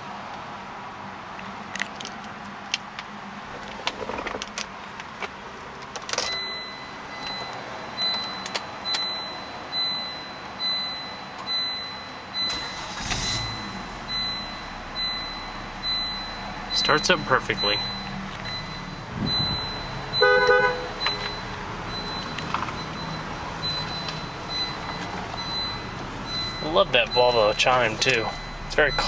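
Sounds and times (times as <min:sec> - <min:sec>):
car engine cranking and idling: 0:00.0 - 0:29.0
keys jangling in ignition: 0:05.8 - 0:06.6
car warning chime dinging: 0:06.1 - 0:29.0.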